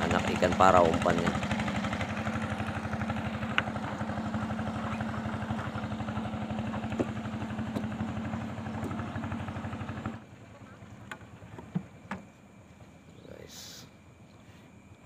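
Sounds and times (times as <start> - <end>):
small engine running: 0.0 - 11.8.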